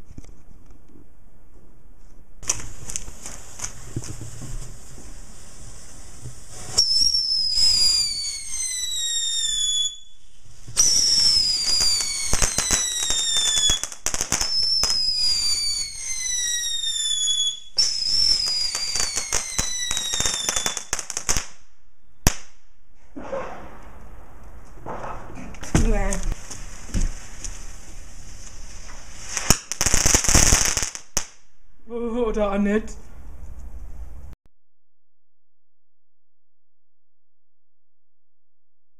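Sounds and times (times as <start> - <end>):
sharp crack: 2.4 - 4.3, 22.2 - 27.6, 28.4 - 31.6
descending firework whistles: 2.4 - 21.5, 26.3 - 31.5
firework fountain hissing and crackling: 2.4 - 21.6, 25.5 - 31.4.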